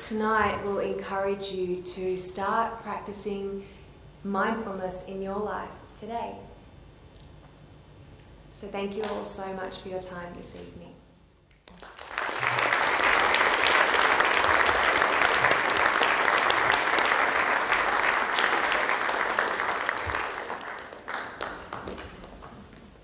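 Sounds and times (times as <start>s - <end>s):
audience applauding: 11.7s - 23.0s.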